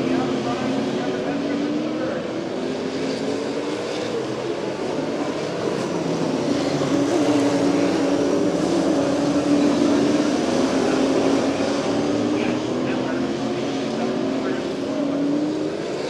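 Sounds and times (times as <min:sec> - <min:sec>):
stock car engines racing: 0:00.0 - 0:16.0.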